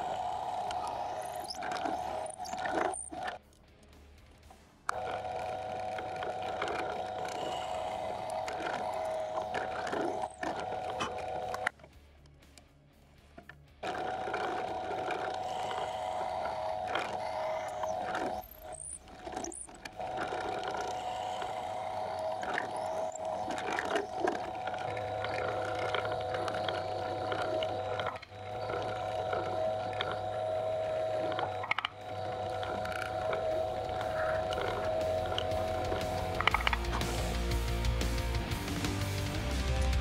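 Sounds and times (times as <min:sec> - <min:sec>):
drill boring into wood: 0:00.0 - 0:03.4, 0:04.9 - 0:11.8, 0:13.8 - 0:38.8
drill press motor running: 0:00.0 - 0:03.5, 0:04.3 - 0:11.9, 0:13.4 - 0:40.0.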